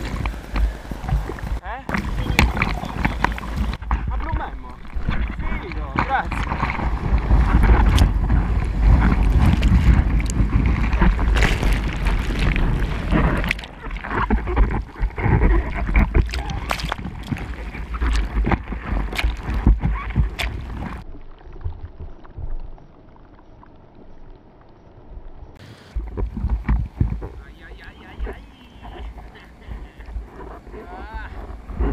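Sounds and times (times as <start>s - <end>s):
wind buffeting microphone: 0.0s - 21.0s, 25.9s - 31.9s
seawater splashing and sloshing: 0.0s - 22.4s.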